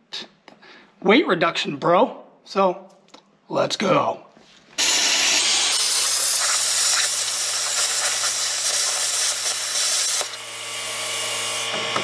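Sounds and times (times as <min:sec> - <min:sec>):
plasma cutter hissing: 0:04.8 - 0:10.5.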